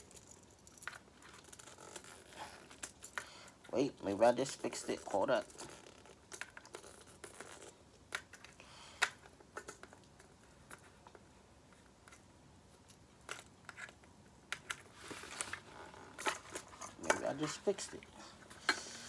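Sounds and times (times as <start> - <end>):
rustling scrape: 14.7 - 19.0.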